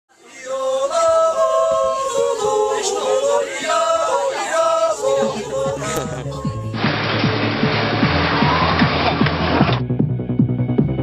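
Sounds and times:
voices singing without instruments: 0:00.1 - 0:06.8.

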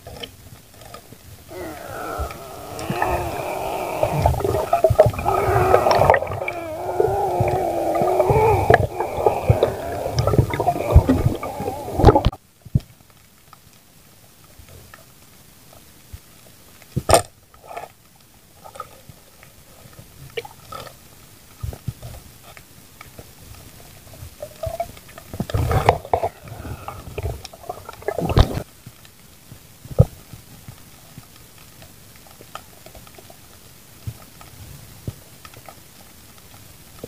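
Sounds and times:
rough underwater noise: 0:00.8 - 0:12.4.

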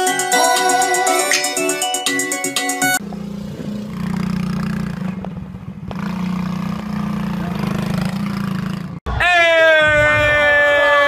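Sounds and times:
keyboard music: 0:00.0 - 0:03.0
quad bike engine running: 0:03.0 - 0:09.0.

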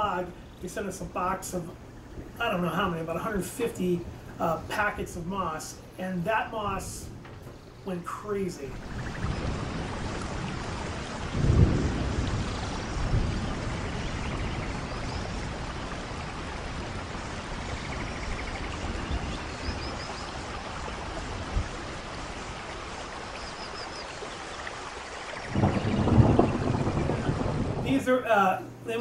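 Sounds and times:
falling water rushing: 0:00.0 - 0:29.0
low thumps: 0:25.5 - 0:28.1.

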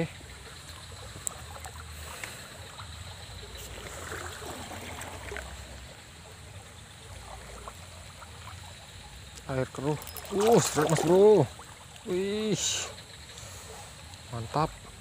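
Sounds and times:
floodwater running in river: 0:00.0 - 0:15.0.

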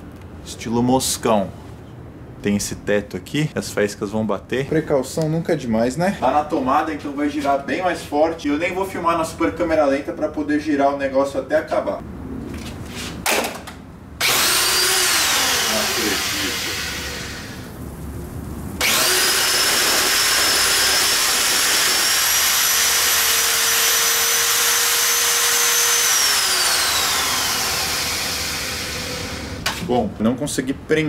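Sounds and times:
electric drill whining: 0:14.2 - 0:17.7, 0:18.8 - 0:29.7.

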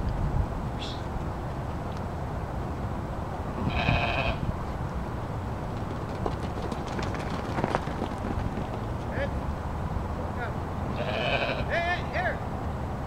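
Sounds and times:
steady low rumble: 0:00.0 - 0:07.5
sheep bleating: 0:03.6 - 0:04.5, 0:10.9 - 0:11.8.

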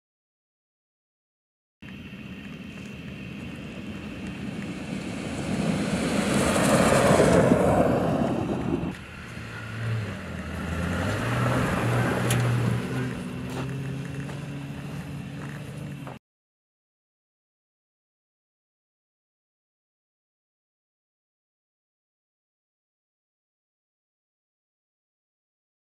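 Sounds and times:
truck engine droning: 0:01.8 - 0:16.2
tyre and wind rush: 0:03.6 - 0:13.9.

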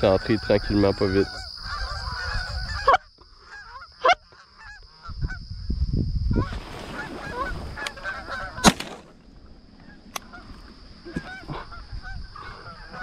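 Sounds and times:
geese honking and clucking: 0:00.0 - 0:05.4, 0:06.3 - 0:08.9, 0:09.8 - 0:13.0
loud shotgun blast: 0:08.6 - 0:09.1.

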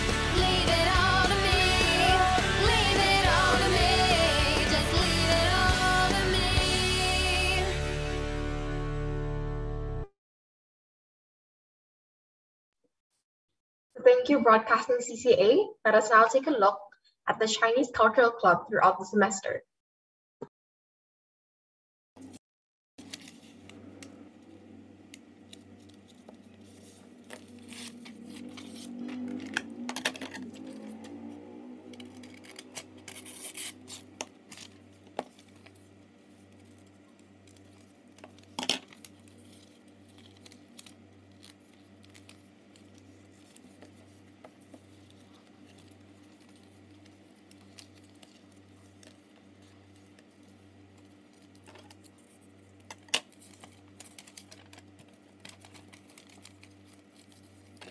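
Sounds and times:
paper being folded: 0:23.0 - 0:24.5, 0:25.1 - 0:57.9
scissors cutting paper: 0:25.4 - 0:57.9.

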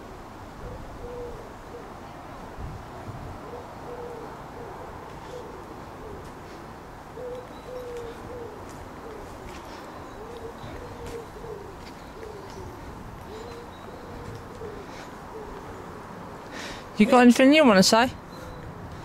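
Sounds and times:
pigeon cooing: 0:00.6 - 0:02.1, 0:03.4 - 0:16.2.

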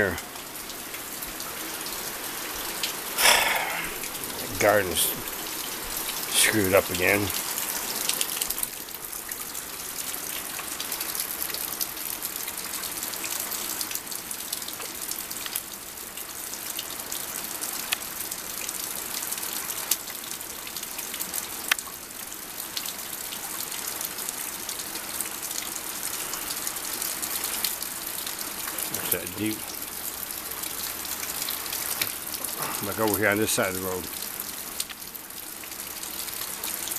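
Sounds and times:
floodwater rushing: 0:00.0 - 0:14.4, 0:25.9 - 0:36.9.

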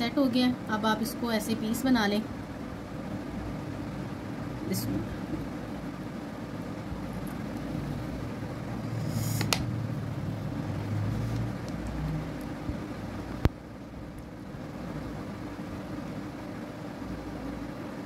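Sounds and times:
low machine hum: 0:00.0 - 0:18.0
brief hiss: 0:09.0 - 0:09.7.

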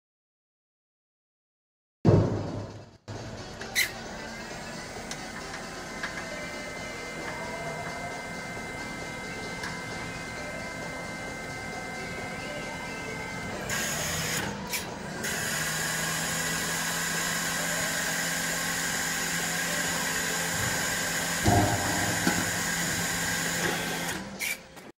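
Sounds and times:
hydraulic pump motor whine: 0:03.6 - 0:24.9.

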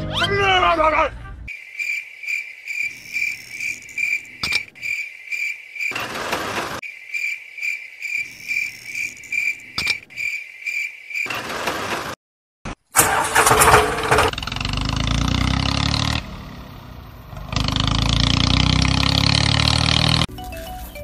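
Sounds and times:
cricket chirping: 0:01.5 - 0:11.6.

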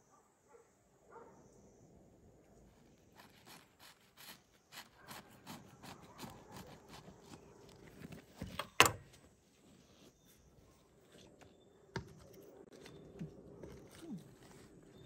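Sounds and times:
knife sawing through bread: 0:03.1 - 0:07.6.

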